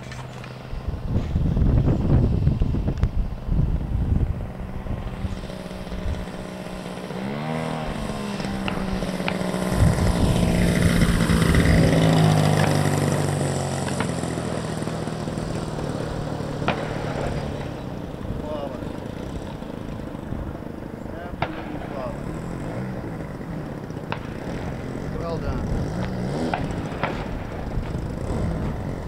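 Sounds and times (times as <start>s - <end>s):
wind noise on microphone: 0.0s - 13.4s, 24.8s - 29.0s
model airplane engine: 0.0s - 29.0s.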